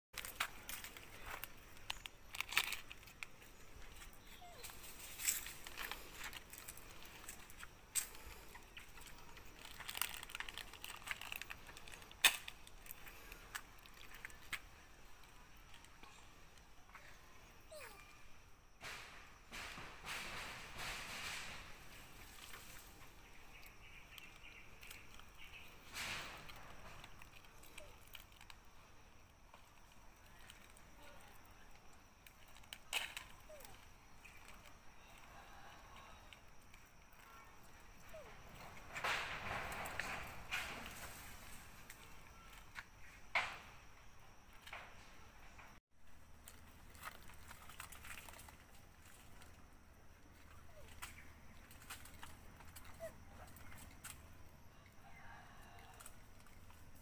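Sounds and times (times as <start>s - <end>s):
plastic wrapper crinkling: 0.2s - 14.6s
plastic wrapper snaps: 9.6s - 13.6s.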